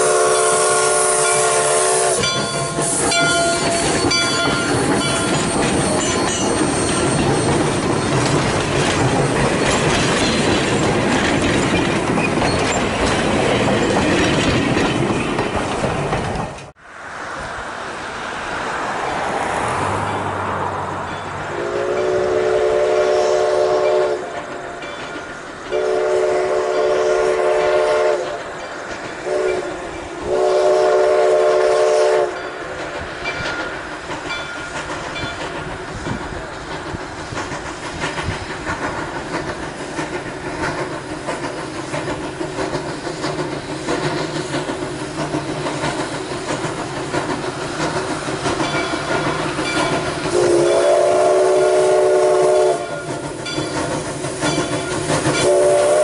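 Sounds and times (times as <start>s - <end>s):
steam whistle blowing: 0.0s - 4.2s, 21.5s - 24.3s, 25.8s - 28.4s, 29.2s - 32.4s, 50.3s - 53.2s, 55.3s - 56.0s
train clattering over rails: 0.0s - 56.0s.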